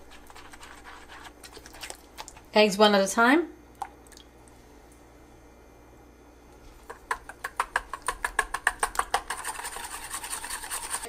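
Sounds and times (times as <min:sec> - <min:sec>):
whisk beating batter: 0:00.0 - 0:02.5, 0:06.8 - 0:11.0
whisk clicking on steel bowl: 0:06.9 - 0:11.0.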